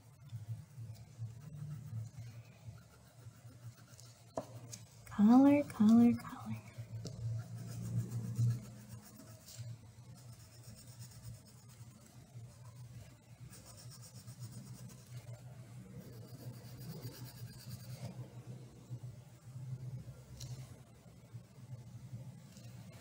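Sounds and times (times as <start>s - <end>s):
crayon scratching on paper: 0.0s - 6.2s, 7.1s - 15.3s, 16.0s - 18.1s.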